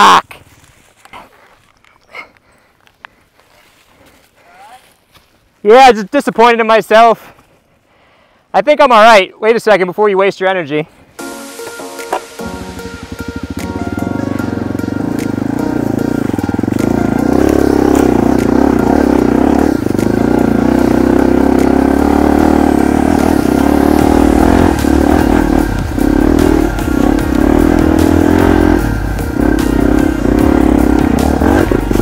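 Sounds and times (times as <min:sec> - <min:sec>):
dirt bike engine revving: 0:12.2 - 0:32.0.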